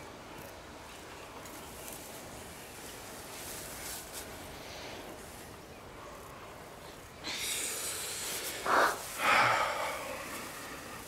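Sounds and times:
heavy breathing: 7.2s - 11.0s.

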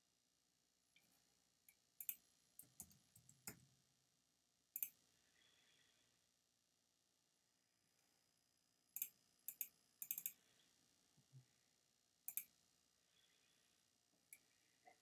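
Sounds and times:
computer mouse clicks: 2.0s - 3.6s, 4.8s - 5.0s, 9.0s - 10.4s, 12.3s - 12.5s.

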